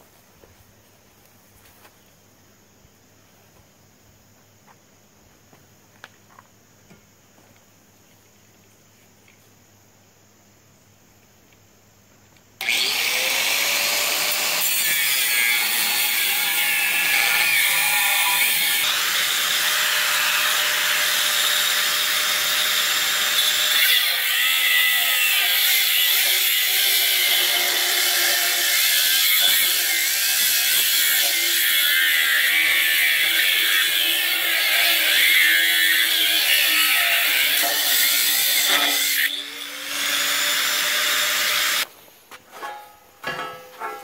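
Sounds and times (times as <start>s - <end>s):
angle grinder cutting steel: 12.6s - 41.9s.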